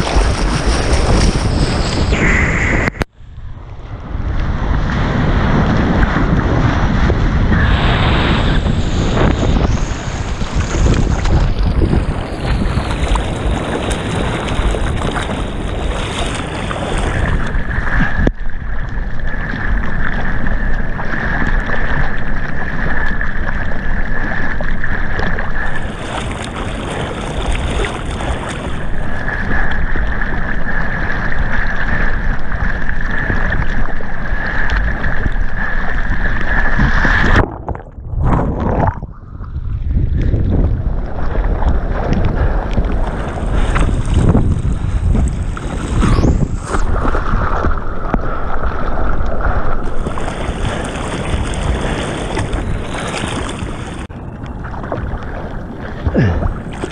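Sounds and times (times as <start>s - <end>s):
wind buffeting microphone: 0.0s - 22.1s, 25.2s - 56.9s
water rushing past: 0.0s - 56.9s
thin whistle-like tone: 54.1s - 54.6s.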